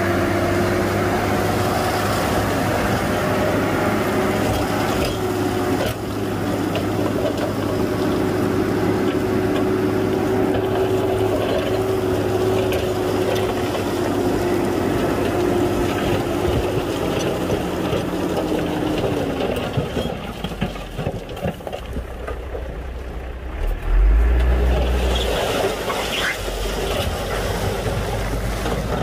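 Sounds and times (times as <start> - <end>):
bulldozer diesel engine running: 0.0 - 29.0
steady whine: 21.8 - 27.0
loud low rumble: 21.8 - 27.3.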